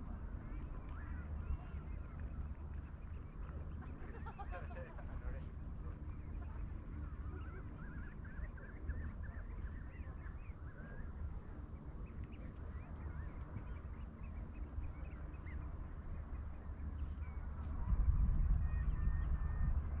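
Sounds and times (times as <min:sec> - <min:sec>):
steady low rumble: 0:00.0 - 0:20.0
waterfowl calling: 0:06.0 - 0:11.5.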